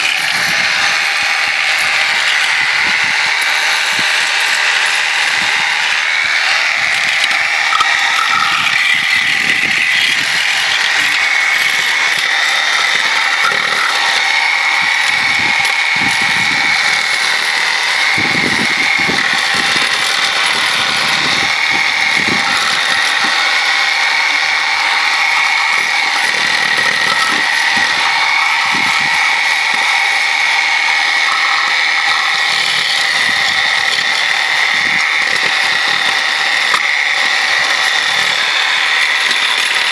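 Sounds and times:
reciprocating saw scraping: 0.0 - 39.9.

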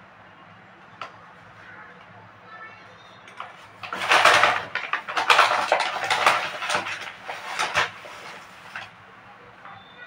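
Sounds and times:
metal cup and bowl clattering: 3.3 - 8.9.

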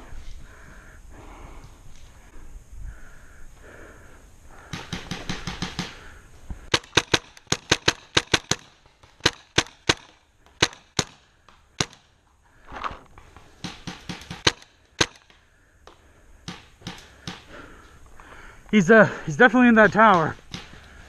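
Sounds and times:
paintball marker firing: 4.7 - 6.1, 6.7 - 12.1, 13.4 - 15.4, 16.4 - 17.6, 19.8 - 21.0.

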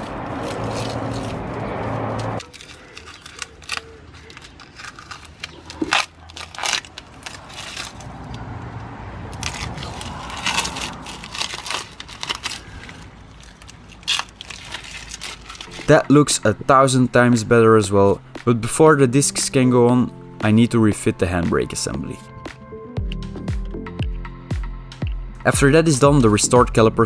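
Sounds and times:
masking tape tearing: 0.0 - 8.5, 9.3 - 16.1.

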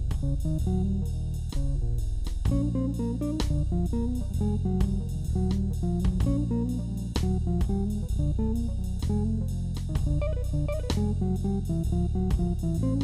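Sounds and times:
plucked guitar melody: 0.0 - 13.0
steady bass line: 0.0 - 13.0.

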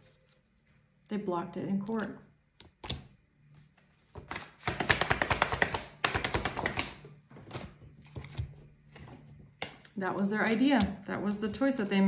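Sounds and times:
cards shuffling with rapid clicks: 4.0 - 7.0.

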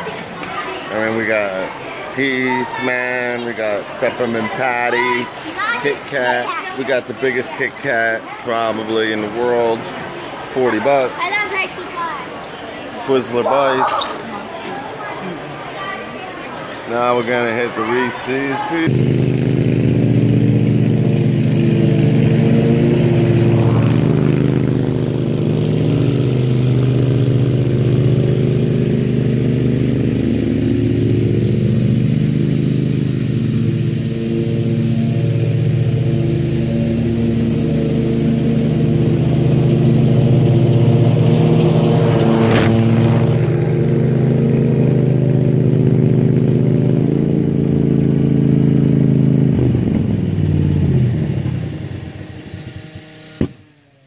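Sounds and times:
lawn mower engine running: 18.8 - 54.0.

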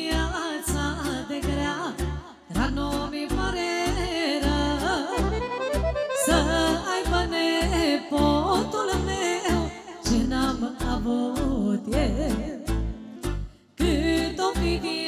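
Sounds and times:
woman singing into microphone: 0.0 - 13.2, 13.8 - 15.0
pulsing bass: 0.0 - 14.9
accordion melody: 4.0 - 9.9.

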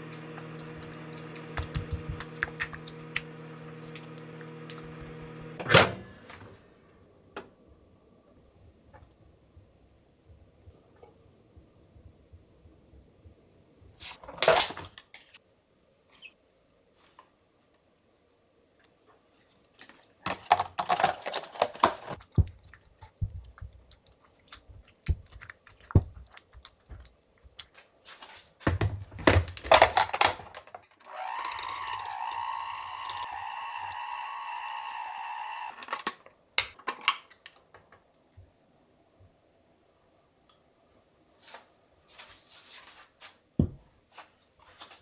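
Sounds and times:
electric hand mixer whining: 0.0 - 5.6, 31.1 - 36.0.

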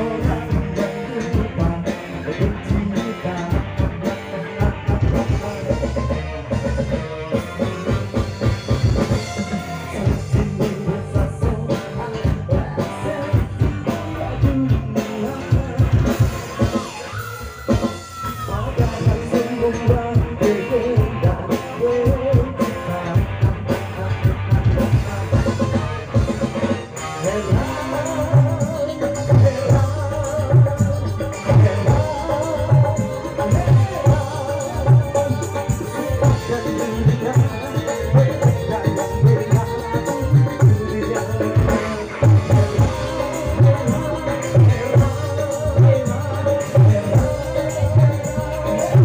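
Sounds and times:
drums with steady beat: 0.0 - 49.0
electric bass guitar: 0.0 - 49.0
keyboard: 0.0 - 49.0
live band music: 0.0 - 49.0
man singing: 0.0 - 49.0.

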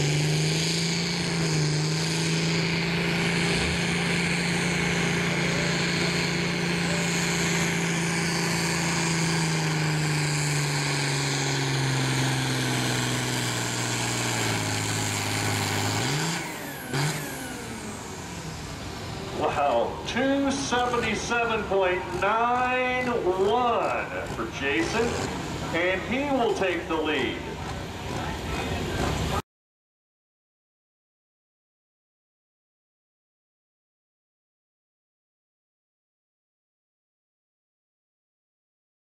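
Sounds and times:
tractor diesel engine at full throttle: 0.0 - 29.4.

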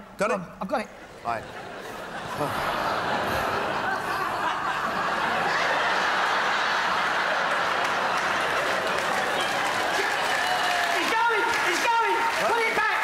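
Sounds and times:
audience laughing: 1.0 - 11.2.

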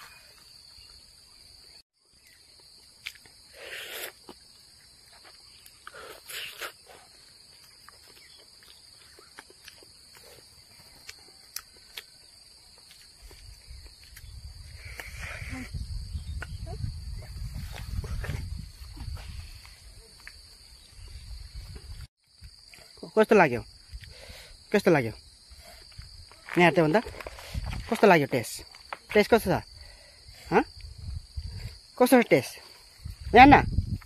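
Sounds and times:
short close noises: 5.8 - 7.0
high-pitched insect drone: 10.0 - 34.0.

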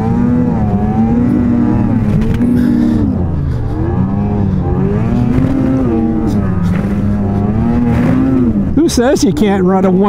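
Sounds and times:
snowmobile engine revving: 0.0 - 10.0.

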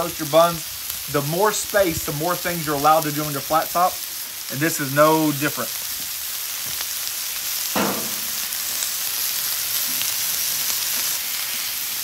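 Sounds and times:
food sizzling on griddle: 0.0 - 12.0
brief knock: 7.8 - 8.4.

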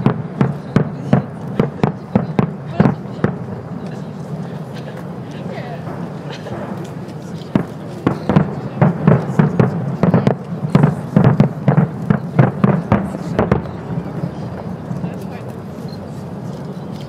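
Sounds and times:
fireworks booming: 0.0 - 16.4.

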